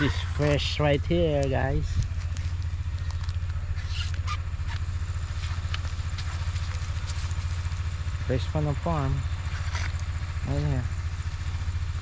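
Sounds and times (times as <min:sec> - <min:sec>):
small engine idling: 0:00.0 - 0:12.0
light rustling: 0:01.4 - 0:08.1.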